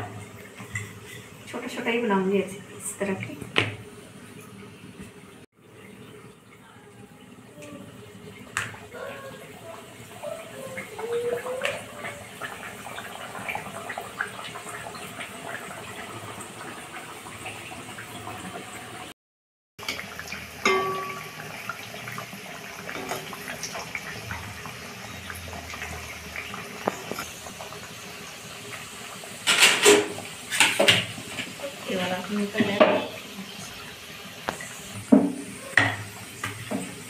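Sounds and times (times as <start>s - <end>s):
batter sizzling in hot oil: 19.8s - 37.0s
metal skimmer clinking pan: 20.6s - 21.6s.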